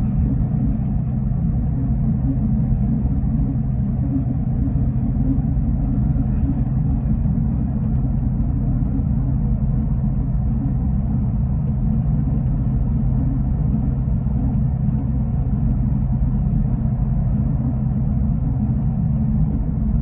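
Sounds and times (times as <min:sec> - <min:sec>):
bus engine hum: 0:00.0 - 0:20.0.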